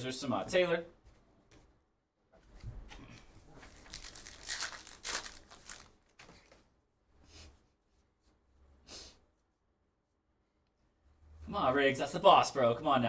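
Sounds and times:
cards rustling: 0:03.2 - 0:06.7
wrapper tearing and crinkling: 0:03.6 - 0:06.3.

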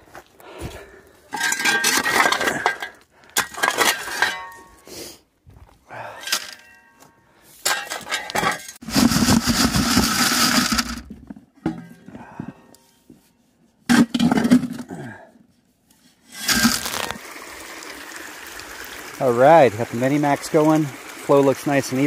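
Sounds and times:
shovel scraping into gravel: 0:07.6 - 0:11.1, 0:16.3 - 0:17.2
stones rattling on metal mesh: 0:16.4 - 0:17.2.

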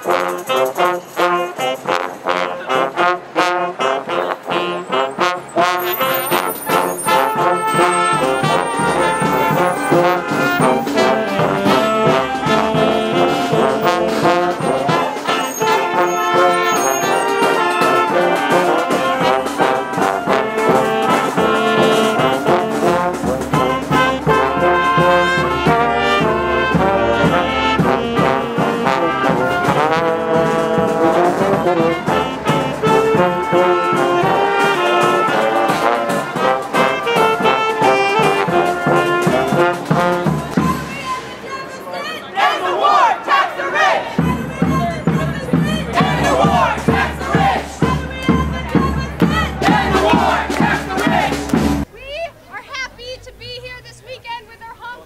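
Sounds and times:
brass band playing: 0:00.0 - 0:54.6
snare and bass drum beats: 0:07.0 - 0:41.1, 0:44.2 - 0:51.9.

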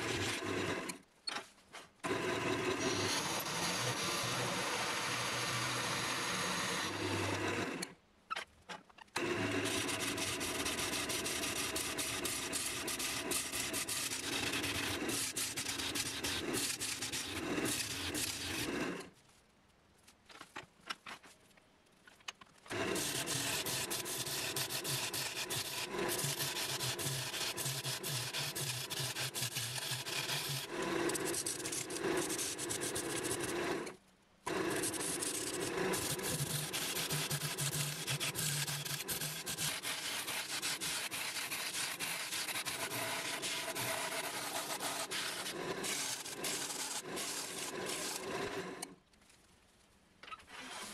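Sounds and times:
scratchy sanding hiss: 0:22.7 - 0:33.6, 0:34.5 - 0:48.7.

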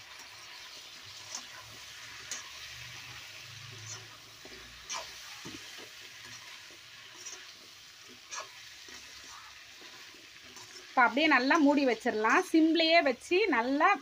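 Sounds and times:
food sizzling in a pan: 0:00.0 - 0:14.0
ladle scraping a pan: 0:01.0 - 0:11.8.

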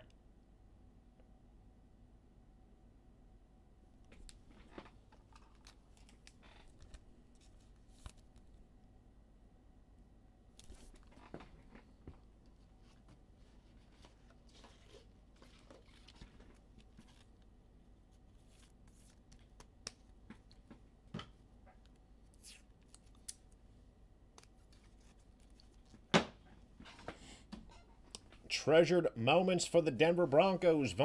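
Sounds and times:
trading cards being handled: 0:04.1 - 0:08.6, 0:10.6 - 0:11.9, 0:12.8 - 0:17.4, 0:18.1 - 0:20.8, 0:24.4 - 0:26.1.

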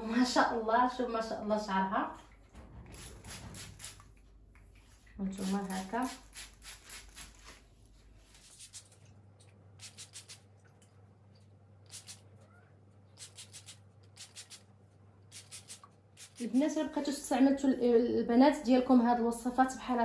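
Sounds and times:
spray bottle hisses: 0:02.9 - 0:04.0, 0:09.8 - 0:10.4, 0:11.9 - 0:12.2, 0:13.2 - 0:14.6, 0:15.3 - 0:16.6.

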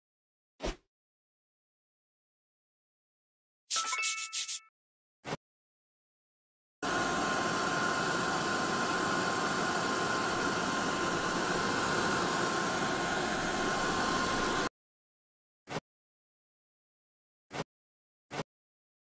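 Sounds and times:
hair dryer blowing: 0:06.8 - 0:14.7.

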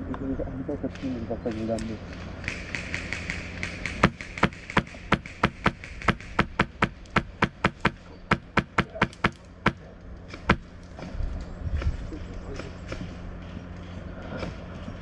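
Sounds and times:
airsoft gunfire cracks: 0:02.5 - 0:09.4.

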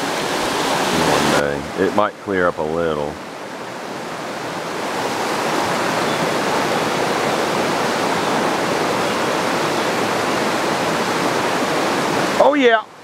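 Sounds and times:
river rapids rushing over rocks: 0:00.0 - 0:02.2, 0:03.1 - 0:13.0.

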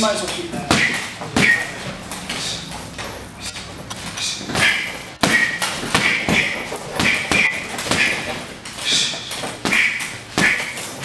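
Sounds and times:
punches on heavy bag: 0:00.7 - 0:01.8, 0:04.5 - 0:08.5, 0:09.5 - 0:10.9.

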